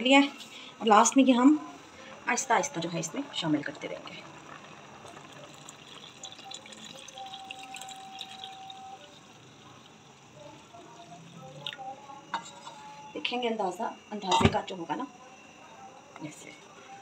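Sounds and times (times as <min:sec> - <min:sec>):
liquid splashing and trickling: 0:05.0 - 0:11.8.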